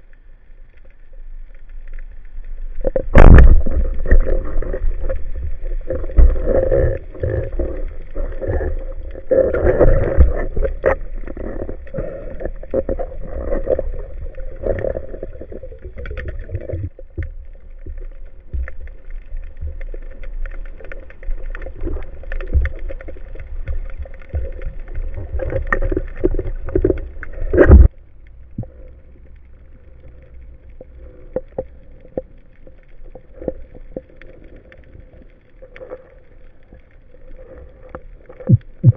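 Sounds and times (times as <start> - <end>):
underwater rushing water: 0.0 - 38.9
knocks and taps underwater: 21.5 - 27.9, 38.4 - 38.9.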